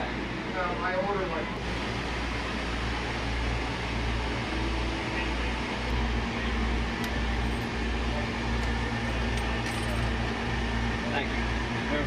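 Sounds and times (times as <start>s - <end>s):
air conditioner fan humming: 0.0s - 12.0s.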